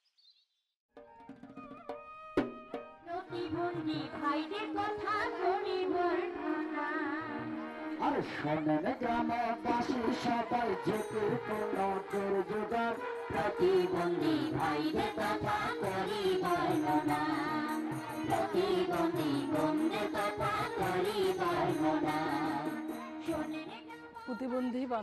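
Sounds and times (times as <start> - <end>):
drum strokes: 1.0 - 3.1
woman singing folk song: 3.1 - 7.4
held instrumental drone: 7.2 - 23.8.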